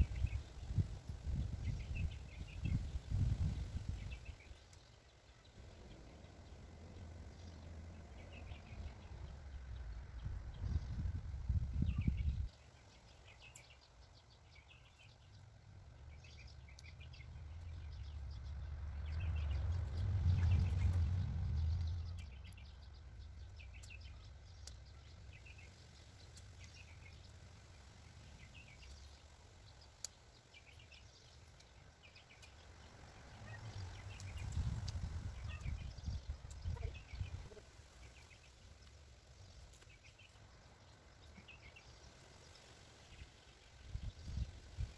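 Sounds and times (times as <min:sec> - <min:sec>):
birds chirping: 0:00.0 - 0:44.9
low rumble: 0:15.4 - 0:24.7.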